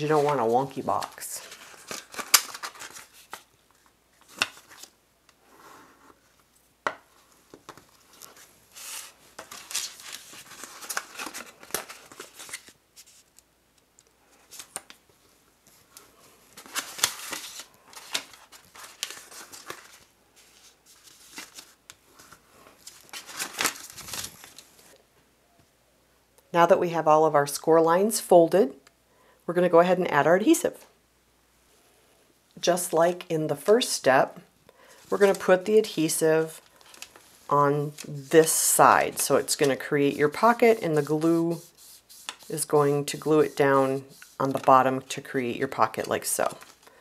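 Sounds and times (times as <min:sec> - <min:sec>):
paper rustling: 0:00.0 - 0:04.9, 0:07.2 - 0:13.4, 0:15.6 - 0:24.9, 0:34.9 - 0:44.8
bone folder scraping paper: 0:40.3 - 0:44.6.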